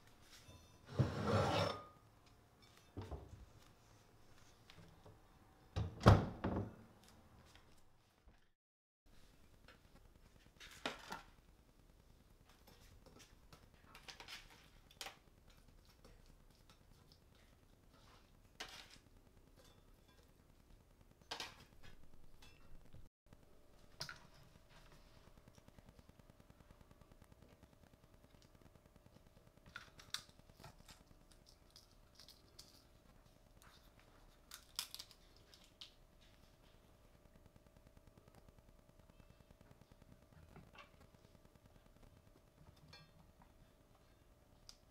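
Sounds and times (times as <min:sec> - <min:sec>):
dried chili peppers crackling: 0:29.5 - 0:36.6.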